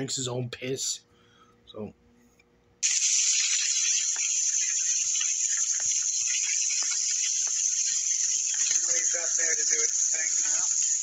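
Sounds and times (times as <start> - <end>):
meat sizzling in a frying pan: 2.8 - 11.0.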